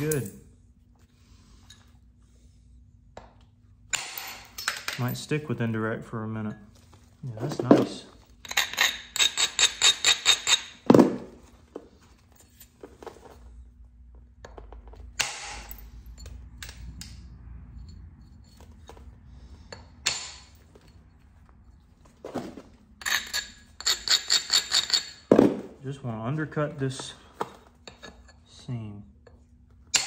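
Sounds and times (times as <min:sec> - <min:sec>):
stone scraping blade edge: 0:23.0 - 0:25.2.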